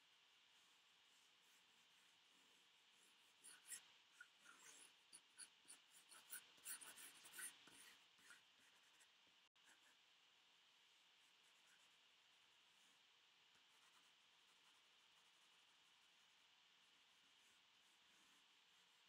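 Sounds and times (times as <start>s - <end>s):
pencil sketching on paper: 0.4s - 10.0s, 10.8s - 19.0s.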